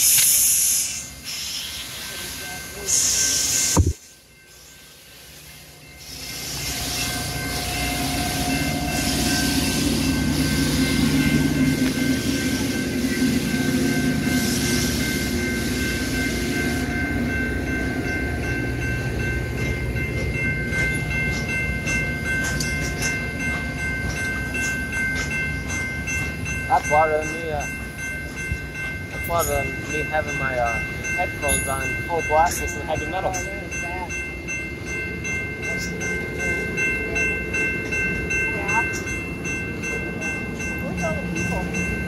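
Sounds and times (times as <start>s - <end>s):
sharp clicks of train wheels: 0.0s - 2.1s, 8.5s - 13.7s, 19.0s - 33.5s
high-pitched whine: 0.0s - 4.7s
train wheels rumbling on rail: 0.0s - 42.0s.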